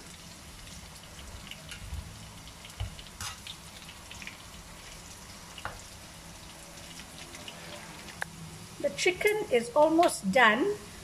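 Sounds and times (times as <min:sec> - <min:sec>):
food sizzling in oil: 0:00.0 - 0:11.0
metal spatula clicking and scraping: 0:03.2 - 0:04.3.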